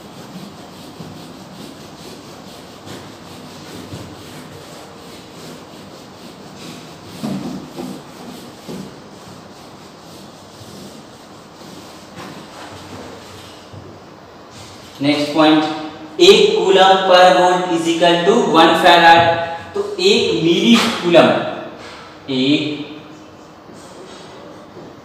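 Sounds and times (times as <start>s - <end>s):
eraser rubbing whiteboard: 0.0s - 13.7s, 14.5s - 22.0s.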